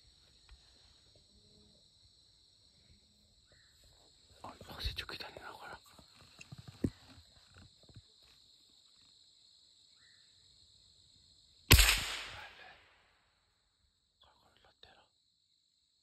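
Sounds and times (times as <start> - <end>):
gun handling clicks: 11.7 - 12.6
gunshot: 11.7 - 13.0.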